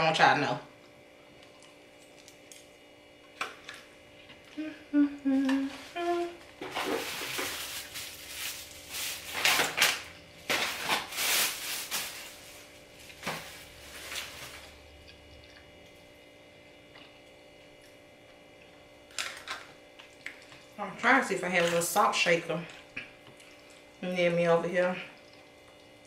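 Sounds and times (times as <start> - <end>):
faint steady hum: 0.0 - 26.0
rustling and clattering of objects: 6.6 - 14.7.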